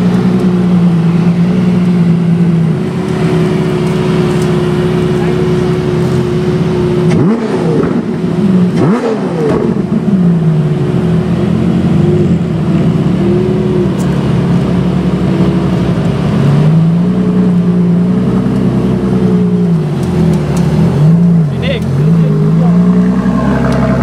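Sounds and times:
car engine idling and revving: 0:00.0 - 0:24.0.

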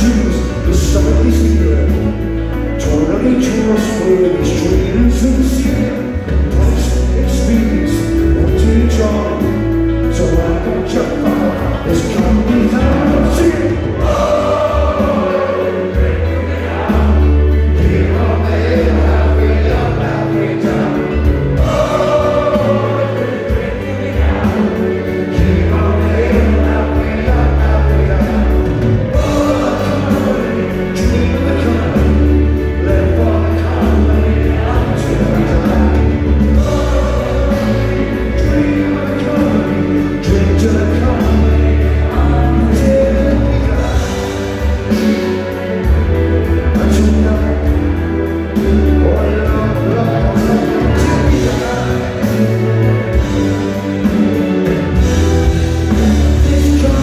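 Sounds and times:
live rock band: 0:00.0 - 0:57.0
person singing: 0:00.0 - 0:57.0
sustained bass notes: 0:00.0 - 0:57.0.

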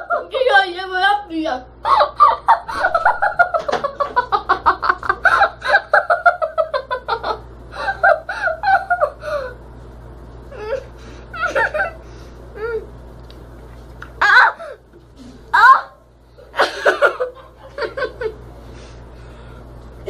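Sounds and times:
girls laughing: 0:01.8 - 0:09.5, 0:11.4 - 0:12.0, 0:16.5 - 0:18.4.

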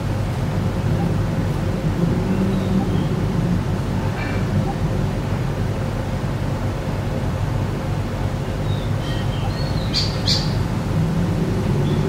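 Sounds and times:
road traffic rumble: 0:00.0 - 0:12.0
birds chirping: 0:02.2 - 0:03.3, 0:08.4 - 0:10.7.

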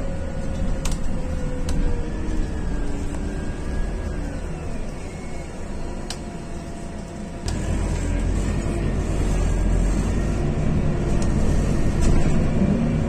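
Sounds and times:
bus engine and tyres rumbling: 0:00.0 - 0:13.0.

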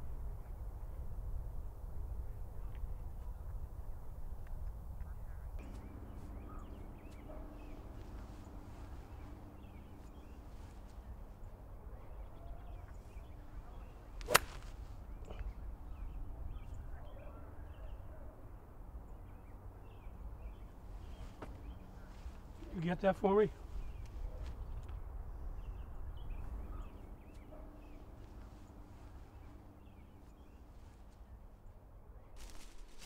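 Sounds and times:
low steady rumble: 0:05.2 - 0:17.5
golf club striking ball: 0:14.2 - 0:14.8.

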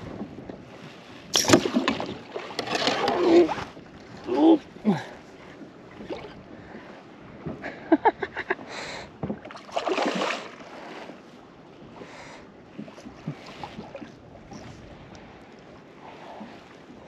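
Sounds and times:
fish thrashing and splashing water: 0:09.5 - 0:10.6.

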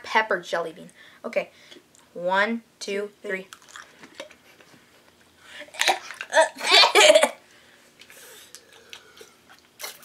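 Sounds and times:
boy gasping and coughing: 0:05.6 - 0:07.4.

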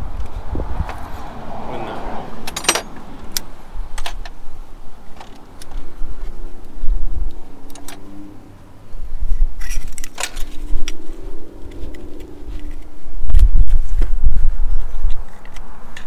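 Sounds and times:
metal parts clicking and clinking: 0:02.4 - 0:04.3, 0:09.6 - 0:11.0
low rumble: 0:06.8 - 0:14.7.

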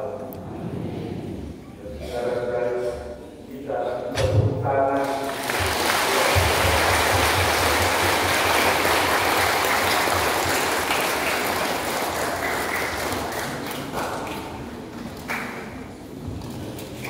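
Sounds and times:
crowd applauding: 0:05.0 - 0:15.6.

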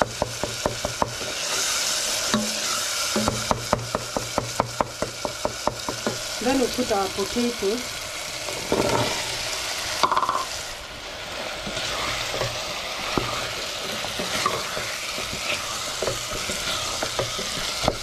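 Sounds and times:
frying hiss in pot: 0:00.0 - 0:18.0
wooden spoon scraping pot: 0:08.4 - 0:09.2, 0:11.4 - 0:18.0.

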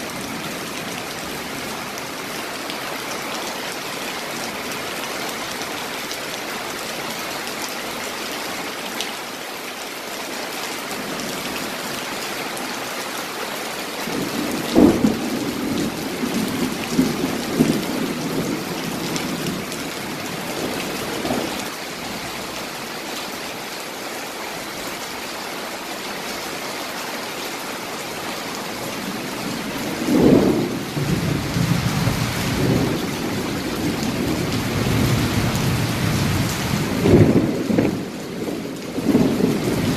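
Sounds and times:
steady rain: 0:00.0 - 0:39.9
thunder rolling: 0:14.3 - 0:18.7, 0:30.0 - 0:38.1.

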